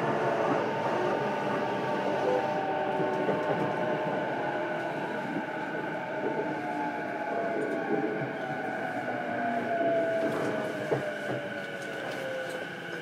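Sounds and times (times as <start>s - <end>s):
wheels rumbling on rail: 0.0s - 13.0s.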